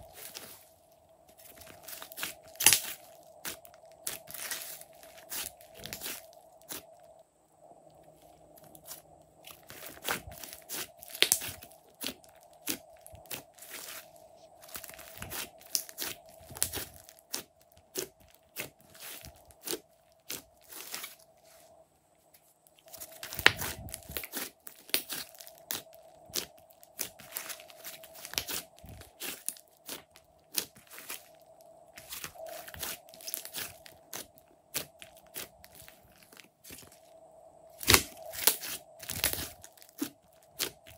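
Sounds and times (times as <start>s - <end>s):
slime crackling and squishing: 0.0s - 7.1s, 8.2s - 21.6s, 22.6s - 37.1s, 37.7s - 40.9s
faint steady hum: 0.0s - 40.9s.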